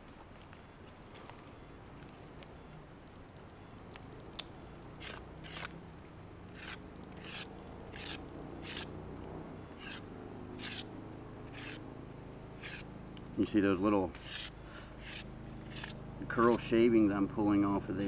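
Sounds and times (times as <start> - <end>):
knife scraping a wooden stick: 5.0 - 5.7, 6.6 - 8.9, 9.8 - 10.0, 10.6 - 10.9, 11.5 - 11.8, 12.6 - 12.9, 14.2 - 16.7.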